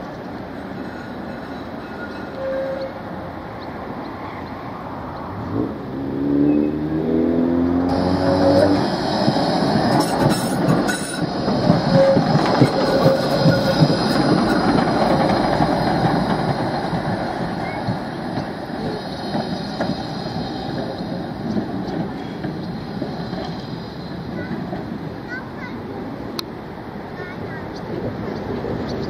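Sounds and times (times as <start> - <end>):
tram wheels rumbling on rails: 0.0 - 29.0
tram motor whine: 6.6 - 25.2.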